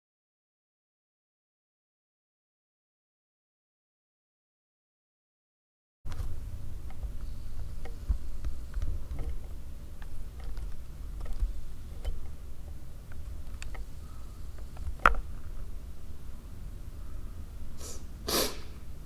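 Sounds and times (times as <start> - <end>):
faint handling clicks and taps: 6.1 - 13.9
low rumble of room noise: 6.1 - 19.0.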